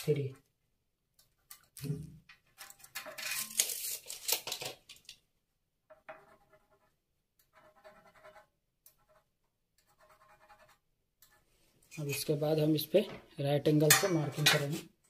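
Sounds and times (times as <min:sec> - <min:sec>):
pen scratching on metal: 0:06.0 - 0:11.4.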